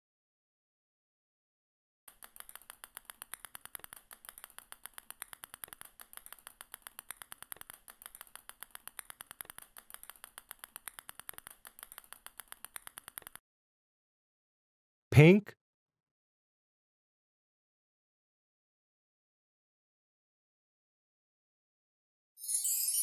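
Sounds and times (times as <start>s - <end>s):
small balls dropping clicks: 2.1s - 13.4s.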